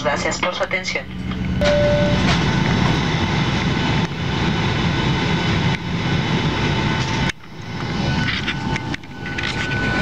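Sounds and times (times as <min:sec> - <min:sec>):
jet engines rushing: 0:00.0 - 0:10.0
short steady beep: 0:01.6 - 0:02.3.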